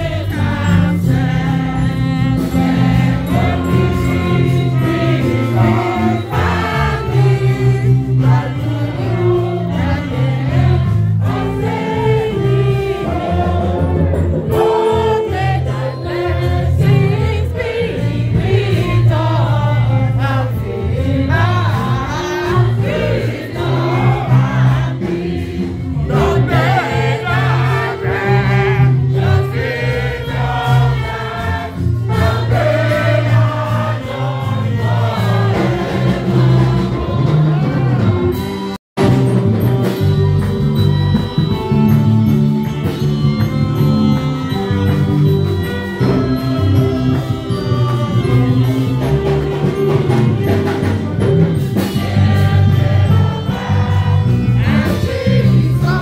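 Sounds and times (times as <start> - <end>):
congregation singing a hymn: 0.0 - 38.2, 45.5 - 56.0.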